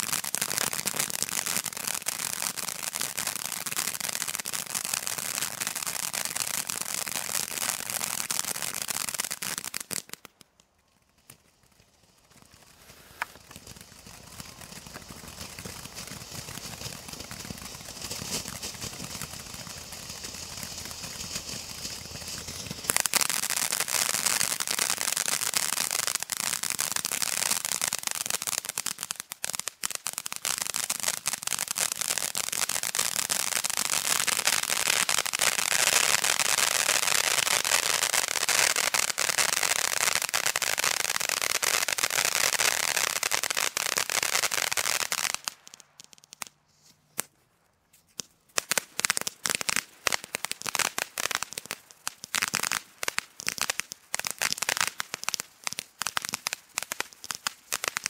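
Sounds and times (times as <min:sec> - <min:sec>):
sharp firework crackles: 0:00.0 - 0:58.0
firework fountain hissing spray: 0:12.3 - 0:26.0.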